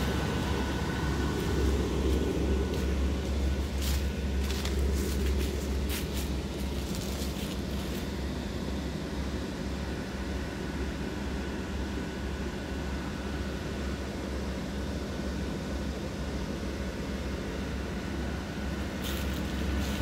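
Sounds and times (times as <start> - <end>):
dry leaves crunching underfoot: 0.0 - 8.2, 19.0 - 20.0
blower fans humming: 0.0 - 20.0.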